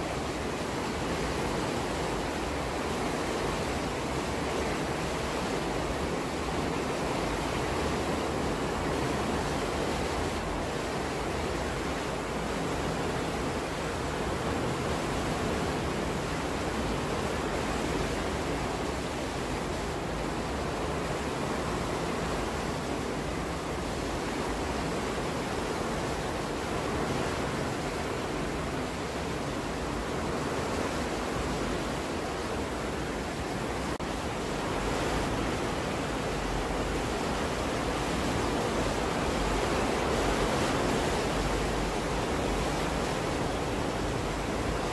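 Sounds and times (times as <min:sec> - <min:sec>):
water rushing through sluices: 0:00.0 - 0:44.9.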